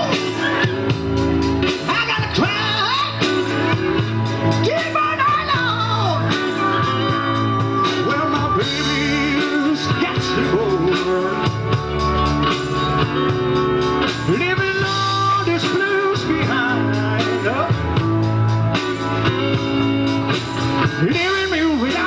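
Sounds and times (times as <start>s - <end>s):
person singing: 0.0s - 11.8s, 14.2s - 18.0s, 20.8s - 22.0s
drums: 0.0s - 22.0s
electric guitar: 0.0s - 22.0s
keyboards: 0.0s - 22.0s.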